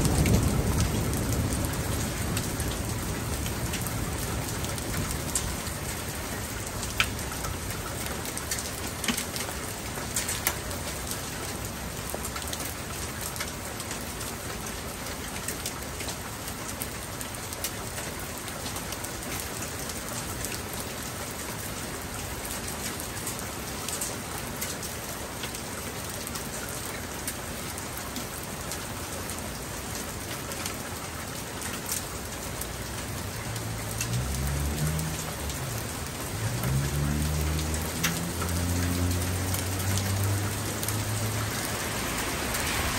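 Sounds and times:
raindrops ticking on surfaces: 0.0s - 42.9s
steady rain falling: 0.0s - 42.9s.

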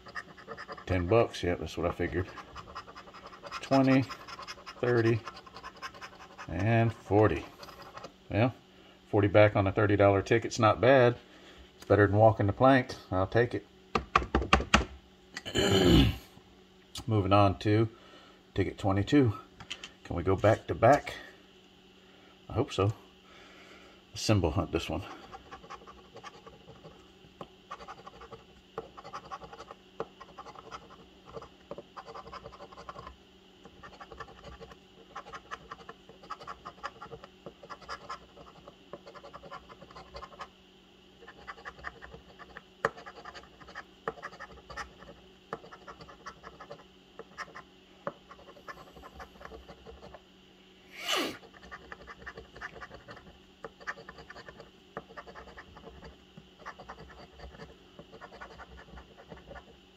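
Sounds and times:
coin scratching lottery ticket: 0.0s - 8.1s, 25.2s - 27.0s, 27.7s - 33.1s, 33.7s - 40.5s, 41.2s - 47.6s, 48.3s - 50.2s, 51.4s - 59.7s.

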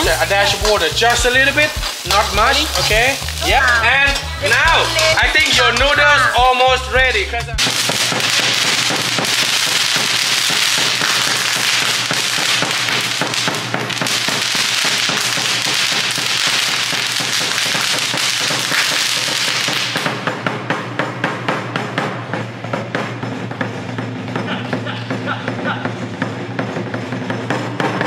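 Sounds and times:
spark fountains hissing and crackling: 0.0s - 6.8s, 7.6s - 20.6s
drum beats: 0.0s - 28.0s.

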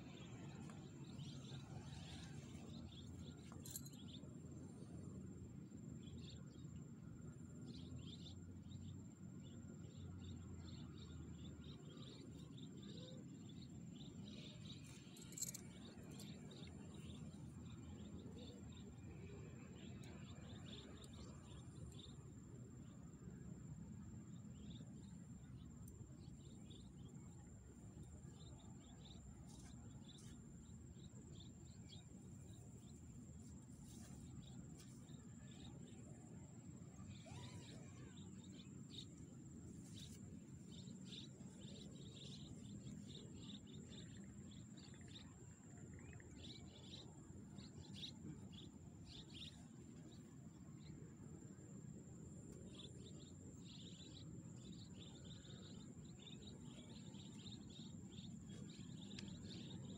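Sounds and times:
faint chirps: 0.0s - 59.9s
high insect drone: 7.7s - 45.4s.

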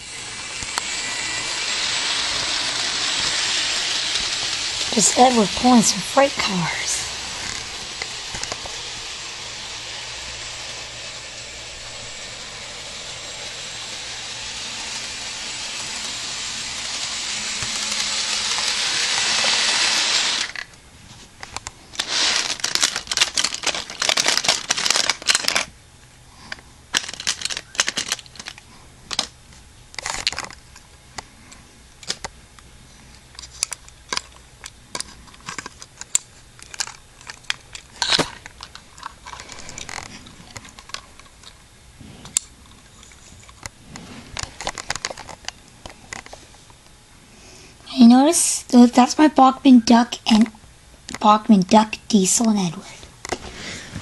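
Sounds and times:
model train whirring: 0.0s - 20.8s, 21.5s - 25.7s
toy trains clicking and knocking: 0.0s - 20.8s, 21.4s - 25.7s, 26.5s - 29.3s, 33.3s - 41.6s, 42.3s - 46.4s.

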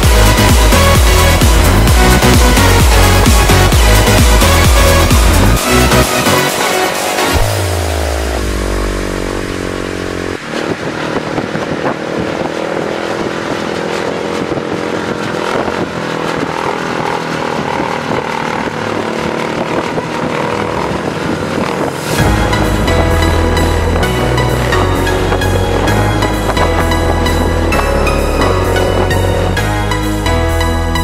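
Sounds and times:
music: 0.0s - 10.4s, 22.0s - 31.0s
motorcycle engine revving: 0.0s - 31.0s.

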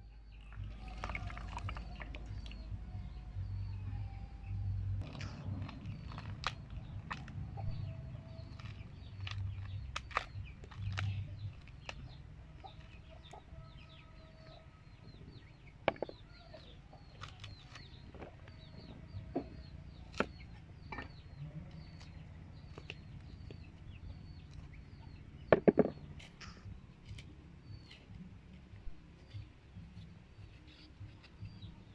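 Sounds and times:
birds chirping: 0.0s - 31.9s
corn husks snapping and rustling: 5.0s - 13.4s, 17.1s - 18.7s.

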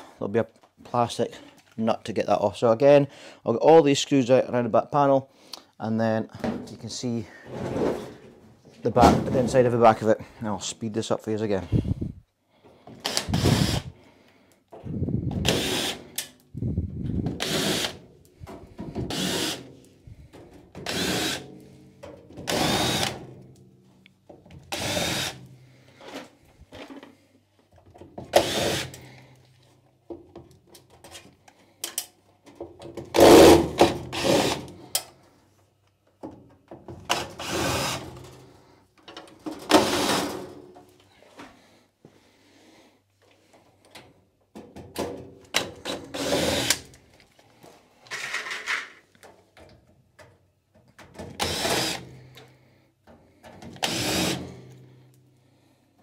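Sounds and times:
power drill driving screws out: 13.0s - 13.9s, 15.4s - 16.1s, 19.0s - 19.6s, 20.8s - 21.4s, 22.5s - 23.2s, 28.3s - 29.0s, 37.1s - 38.1s, 39.7s - 40.4s, 46.1s - 46.9s, 51.3s - 52.1s, 53.8s - 54.5s.

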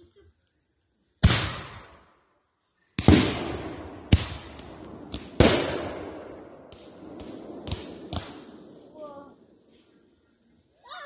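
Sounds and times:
fireworks bangs echoing: 1.2s - 2.1s, 3.0s - 10.1s.

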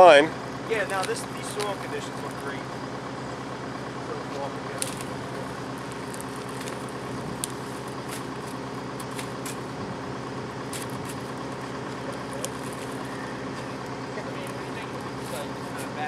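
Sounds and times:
engine running steadily: 0.0s - 16.0s
sharp clicks: 0.8s - 2.4s, 4.8s - 5.2s, 5.8s - 9.7s.

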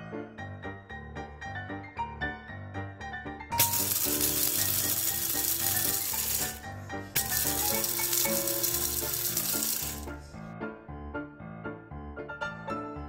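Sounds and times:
background music: 0.0s - 13.0s
electric blender grinding: 3.6s - 10.1s.

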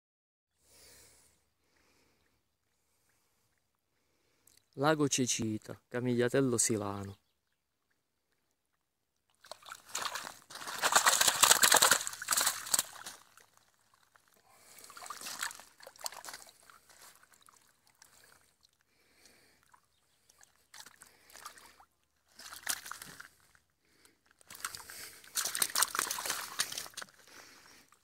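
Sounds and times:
water splashing and sloshing: 7.8s - 28.0s
fish stirring in a keepnet: 9.3s - 18.8s, 20.4s - 23.5s, 24.4s - 28.0s.

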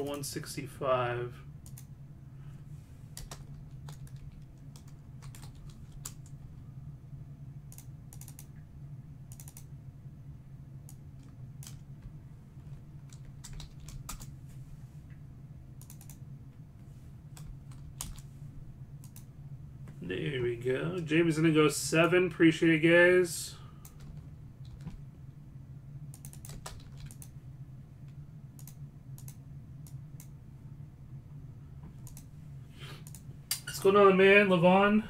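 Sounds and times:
steady low hum: 0.0s - 35.0s
computer keyboard typing: 3.2s - 6.4s, 7.7s - 8.5s, 9.3s - 9.7s, 10.9s - 11.8s, 13.0s - 14.3s, 15.8s - 16.2s, 17.4s - 18.2s, 23.8s - 25.0s, 26.1s - 27.3s.

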